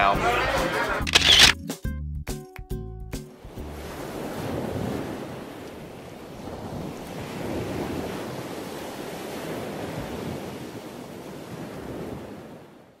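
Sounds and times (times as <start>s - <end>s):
ocean surf washing on shore: 3.5s - 13.0s.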